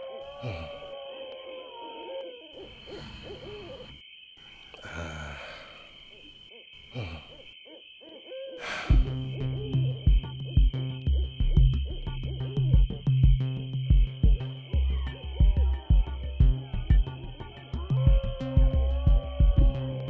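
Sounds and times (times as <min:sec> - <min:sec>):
owl hooting: 0:00.0 - 0:04.0, 0:06.0 - 0:10.6
breaths: 0:00.4 - 0:01.0, 0:02.6 - 0:06.2, 0:06.8 - 0:07.6, 0:08.6 - 0:09.2.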